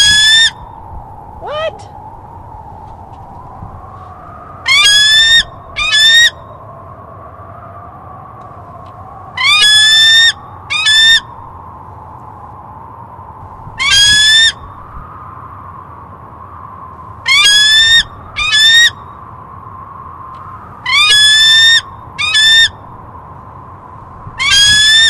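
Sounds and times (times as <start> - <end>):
eagle whistled screams: 0.0 - 0.8, 4.3 - 6.6, 9.3 - 11.4, 13.8 - 14.8, 17.3 - 19.1, 20.8 - 22.9, 24.4 - 25.0.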